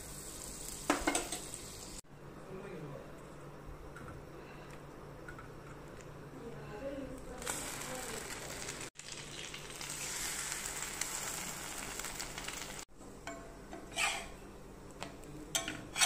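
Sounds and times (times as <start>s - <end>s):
bread sizzling on a griddle: 0.0s - 2.0s, 7.4s - 12.9s.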